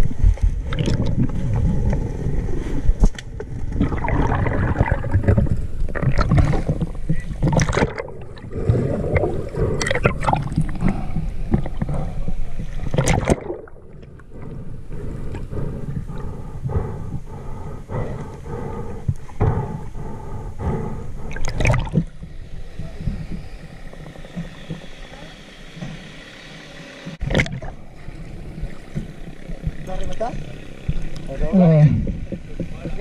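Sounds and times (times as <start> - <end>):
muffled underwater river rushing: 0.0 - 33.0
water splashing: 0.6 - 16.2, 21.2 - 25.3, 27.2 - 33.0.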